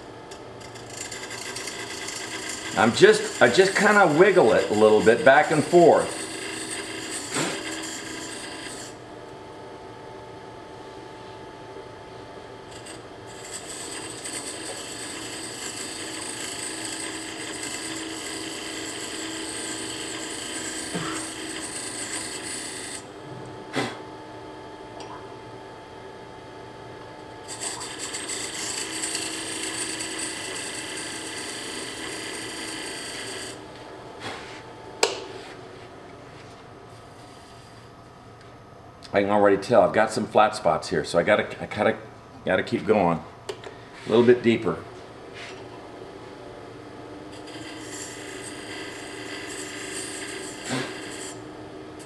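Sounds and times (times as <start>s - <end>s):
tool cutting spinning wood: 0.0s - 9.0s, 12.7s - 23.1s, 27.4s - 33.8s, 47.3s - 52.0s
wood lathe humming: 0.0s - 9.0s, 12.7s - 23.2s, 27.4s - 33.9s, 47.1s - 52.0s.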